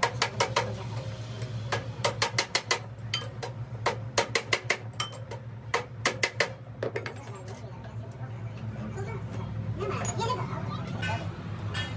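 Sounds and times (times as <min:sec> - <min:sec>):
hammer tapping on metal: 0:01.7 - 0:07.2.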